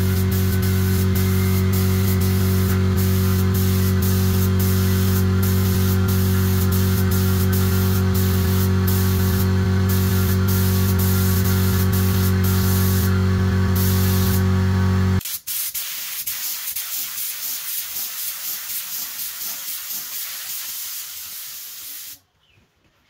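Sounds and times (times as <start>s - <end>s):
spray gun hissing: 0.0s - 14.6s, 15.2s - 22.2s
loud steady hum: 0.0s - 15.2s.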